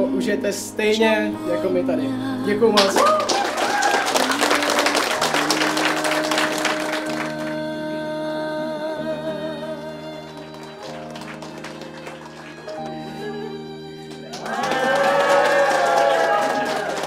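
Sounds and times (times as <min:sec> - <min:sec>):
background music with wavering notes: 0:00.0 - 0:17.0
crowd applauding: 0:02.8 - 0:07.7, 0:10.0 - 0:17.0.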